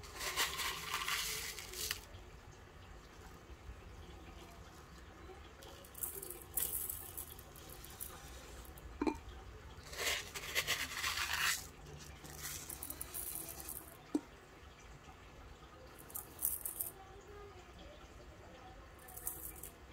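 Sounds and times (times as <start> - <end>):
gravel pouring into glass bowl: 0.0 - 2.1, 5.7 - 8.8, 9.8 - 14.2, 16.0 - 16.9, 19.0 - 19.7.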